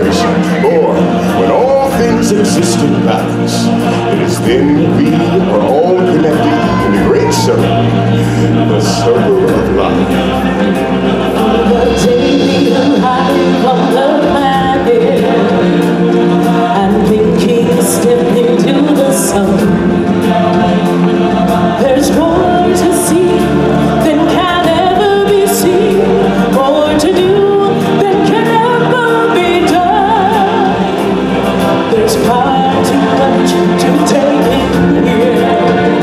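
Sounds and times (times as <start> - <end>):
choir singing: 0.0 - 36.0
music: 0.0 - 36.0.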